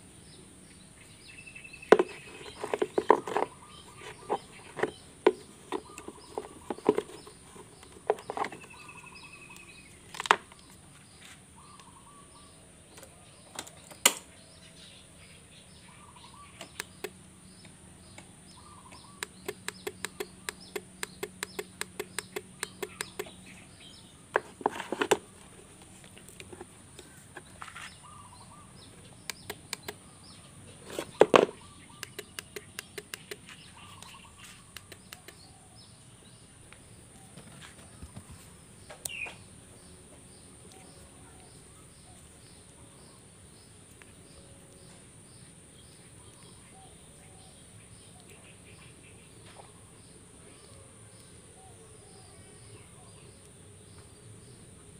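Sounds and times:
starter relay clicking rapidly: 0:19.2 - 0:23.3.

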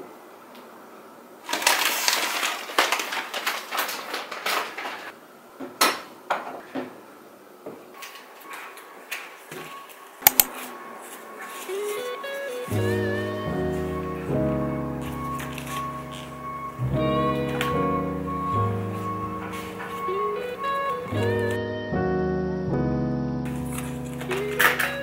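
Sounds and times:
rustling of packaging: 0:01.4 - 0:05.1.

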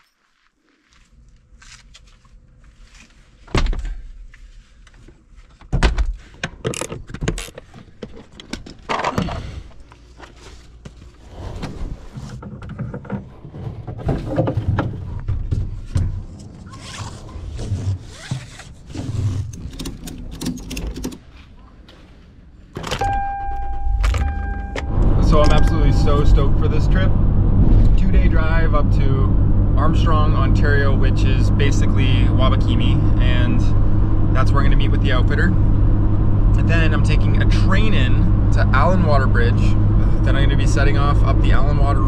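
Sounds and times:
thuds knocks and scrapes: 0:10.4 - 0:16.6.

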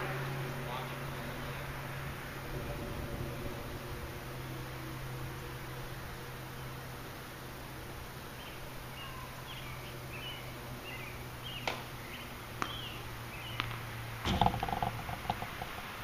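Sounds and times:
steady low hum: 0:00.0 - 0:16.0
birds chirping: 0:00.7 - 0:16.0
distant tennis ball strikes: 0:11.6 - 0:11.9, 0:12.6 - 0:15.9.

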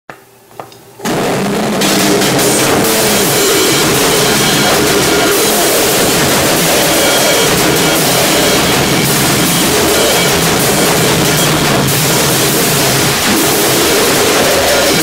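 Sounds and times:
harsh distorted noise music with drums: 0:01.0 - 0:15.0.

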